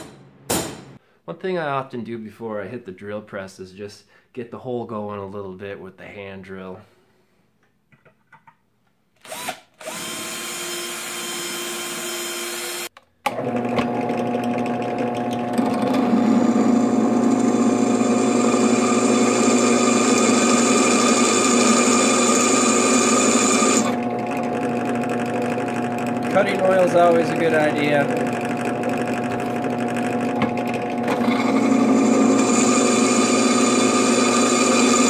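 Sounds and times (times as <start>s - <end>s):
cordless hand drill running: 9.2s - 12.9s, 13.6s - 35.0s
drill press drilling through steel: 13.8s - 35.0s.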